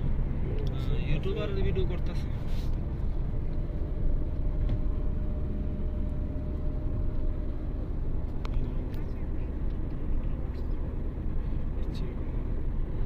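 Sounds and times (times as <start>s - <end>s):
road and engine rumble in car: 0.0s - 13.0s.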